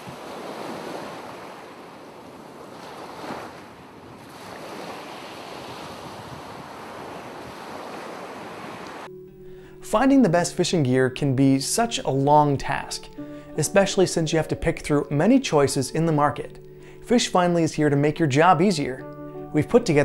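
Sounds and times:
ocean waves washing: 0:00.0 - 0:10.8.

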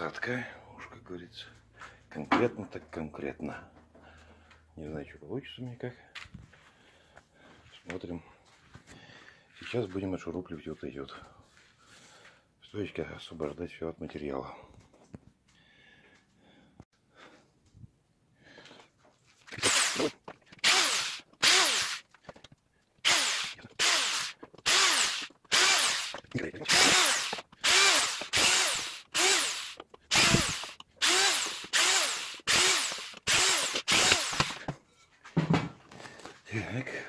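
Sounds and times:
cordless drill whirring: 0:19.5 - 0:22.1, 0:23.0 - 0:34.7.

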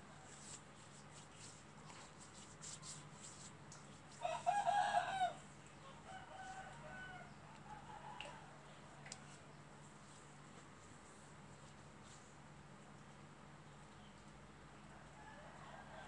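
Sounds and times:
rooster crowing: 0:04.2 - 0:08.6, 0:15.0 - 0:16.0.

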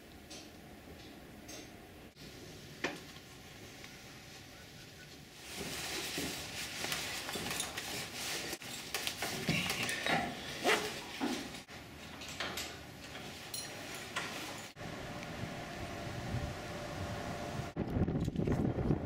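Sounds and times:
metal buckles clinking: 0:12.0 - 0:14.7.

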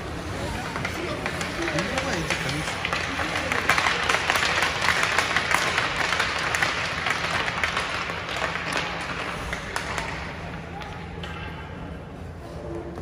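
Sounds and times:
crowd applauding: 0:01.1 - 0:10.3.

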